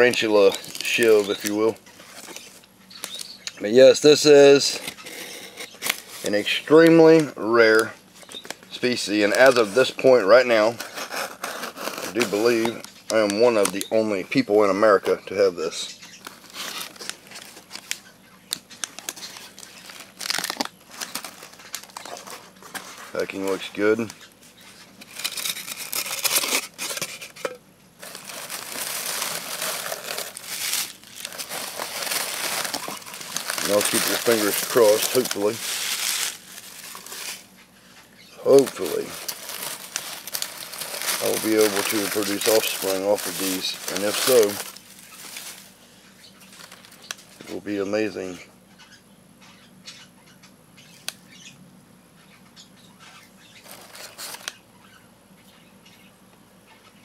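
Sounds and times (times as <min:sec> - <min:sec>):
shredded paper rustling: 0:00.0 - 0:07.9, 0:08.7 - 0:18.1, 0:18.8 - 0:45.8, 0:53.6 - 0:54.5.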